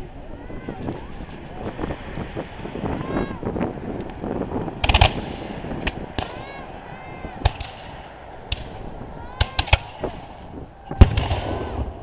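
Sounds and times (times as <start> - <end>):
musket shots echoing: 7.4 - 8.8, 11.0 - 12.0.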